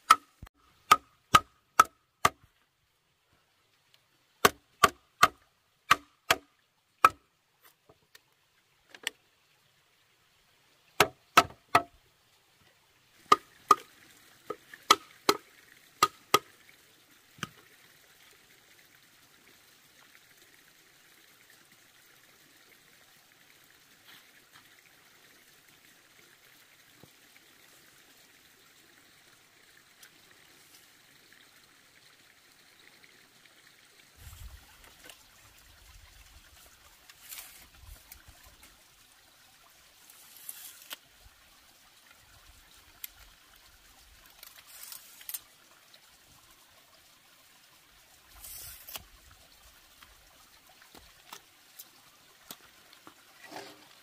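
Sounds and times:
faint steady hiss: 0:00.0 - 0:54.0
tool striking wood: 0:00.9 - 0:02.4, 0:04.4 - 0:06.4, 0:11.0 - 0:11.9.

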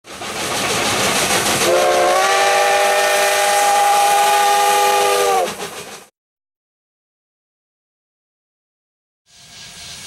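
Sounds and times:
steam hiss: 0:00.1 - 0:06.1, 0:09.3 - 0:10.0
steam locomotive chime whistle: 0:01.6 - 0:05.8.

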